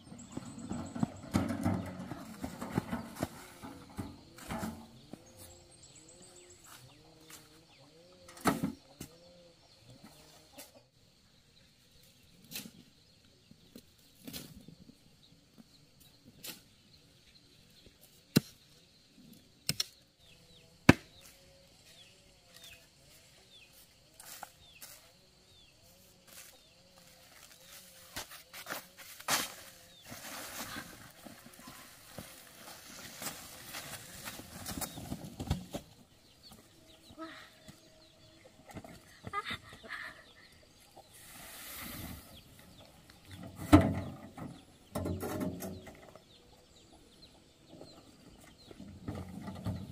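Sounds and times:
shovel clanking on wheelbarrow: 0.0 - 5.0
shovel scraping sand: 41.1 - 42.5.

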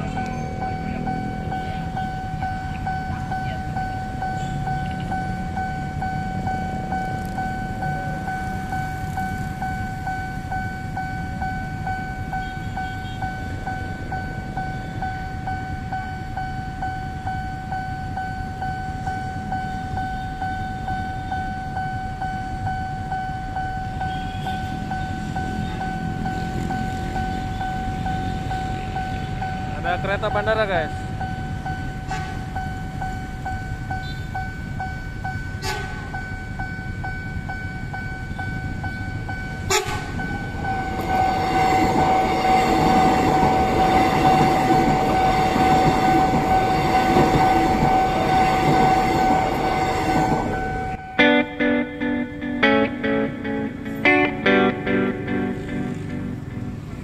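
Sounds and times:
idling motorcycle and bus engines: 0.0 - 41.5, 54.8 - 57.0
level crossing alarm tone: 0.0 - 56.5.

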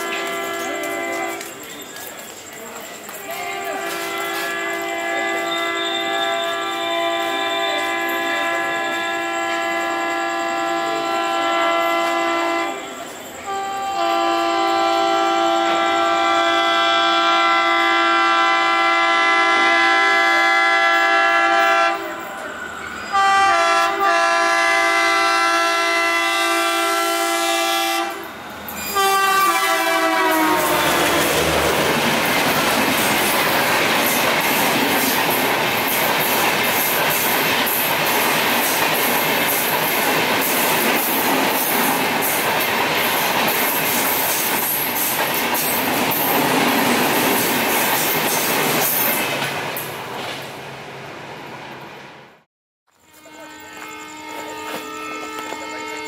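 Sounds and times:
locomotive horn blasts: 0.0 - 1.6, 3.3 - 22.3, 23.1 - 32.0, 53.0 - 56.0
wheel-on-rail noise: 0.0 - 11.1, 28.1 - 51.8
train coaches rushing past: 0.0 - 52.5, 53.1 - 56.0.

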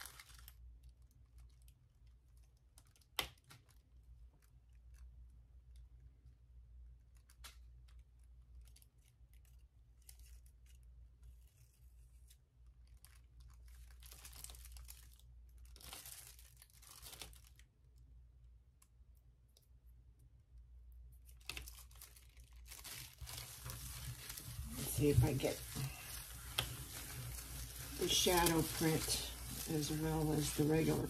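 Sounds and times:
thin paper rustling: 10.0 - 17.6, 21.3 - 31.0
low steady hum: 17.6 - 31.0.

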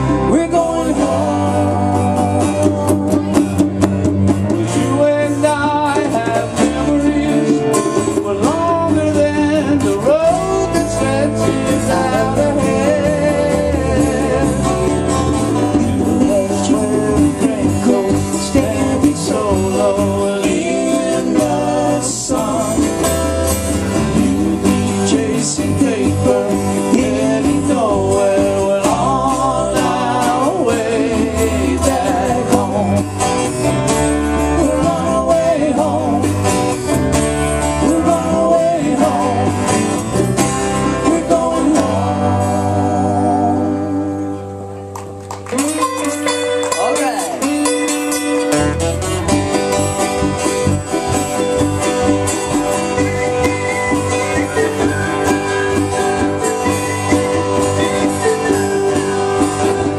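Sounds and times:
acoustic guitars strumming: 0.0 - 59.9
drums: 0.0 - 59.9
person singing: 4.5 - 33.2, 40.8 - 44.6.

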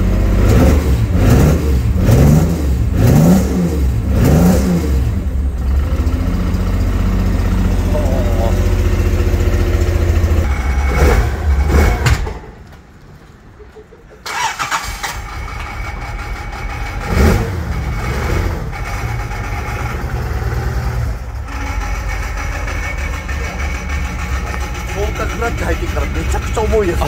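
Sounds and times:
engine sputtering idle: 5.0 - 11.9, 14.3 - 27.0.

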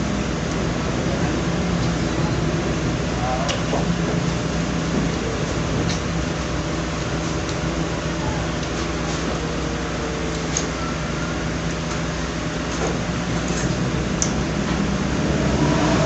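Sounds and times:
fan hum and hiss: 0.0 - 16.0.

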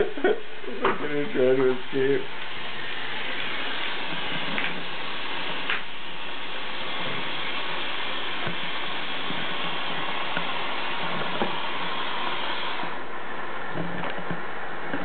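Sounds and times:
faucet water running into sink: 1.2 - 13.0.

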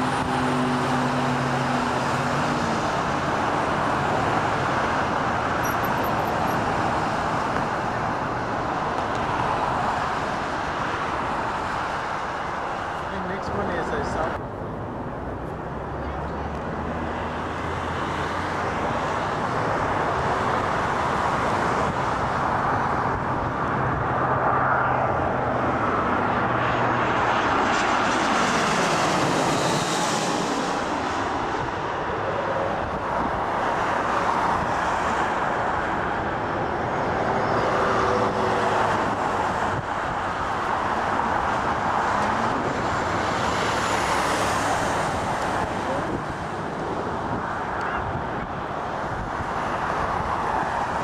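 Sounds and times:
jet airliner passing overhead: 16.8 - 51.0.

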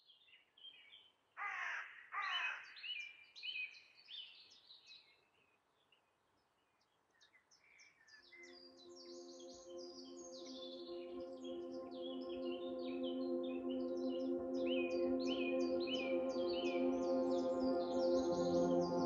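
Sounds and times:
birds chirping: 0.0 - 19.0
harsh bird calls: 1.4 - 3.6
ambient music: 8.4 - 19.0.

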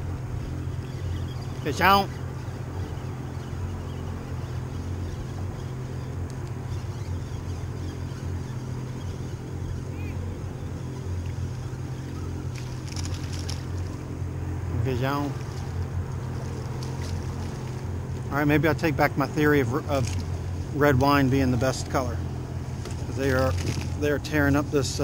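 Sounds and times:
outboard motor idling: 0.0 - 25.0
water and wind noise: 0.0 - 25.0.

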